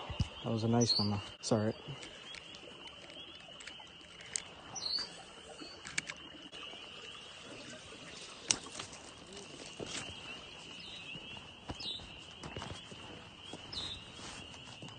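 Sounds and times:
bird chirping: 0.0s - 14.9s
faint gear clicks: 1.9s - 5.1s.

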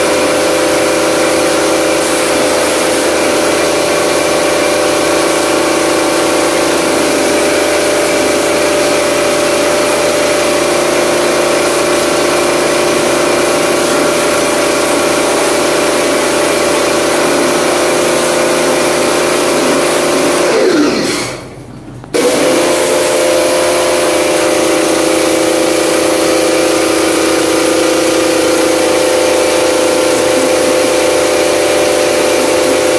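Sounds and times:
water jet hissing on metal coil: 0.0s - 21.6s
pressure washer motor humming: 0.0s - 32.9s.

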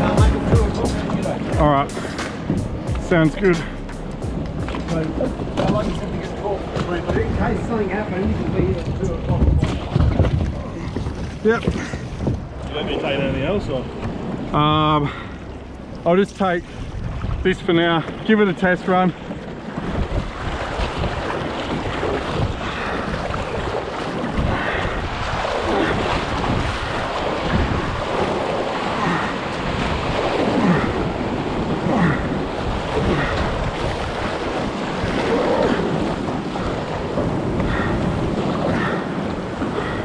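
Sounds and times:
wind buffeting microphone: 0.0s - 16.0s, 16.6s - 40.0s
paddle splashing: 0.0s - 40.0s
sea surf washing around rocks: 0.0s - 40.0s.

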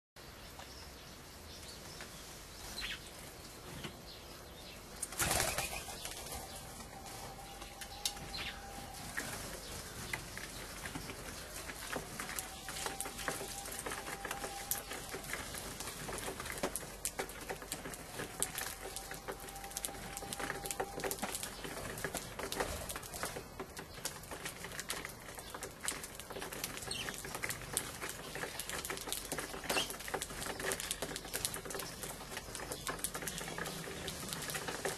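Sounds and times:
sparrows chirping: 0.2s - 34.9s
wings flapping: 5.0s - 7.0s
birds pecking on wooden board: 5.0s - 34.9s.

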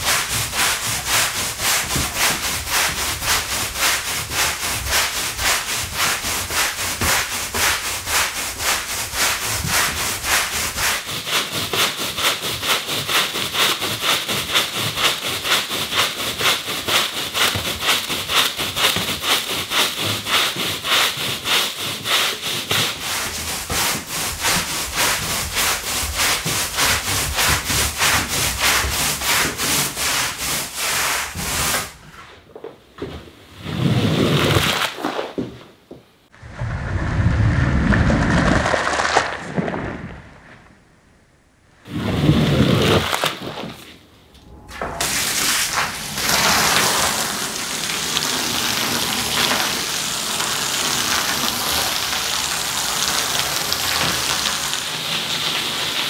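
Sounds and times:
squeegee stroke on wet rug: 0.0s - 32.0s, 41.8s - 44.0s, 44.9s - 56.0s
push broom scrubbing wet rug: 0.0s - 32.1s, 33.6s - 35.2s, 41.9s - 56.0s.

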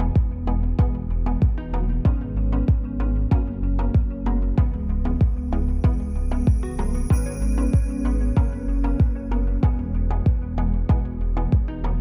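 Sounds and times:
electronic music with kick drum: 0.0s - 12.0s.

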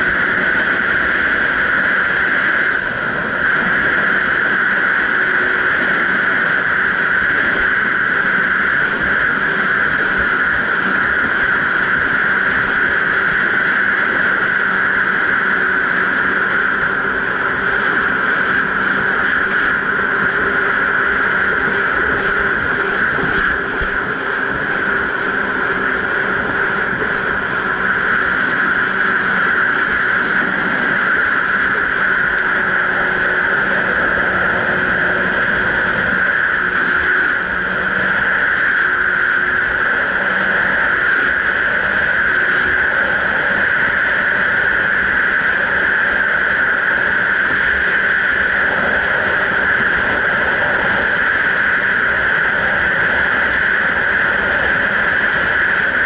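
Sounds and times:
jet ski high-pitched drone: 0.0s - 56.0s.

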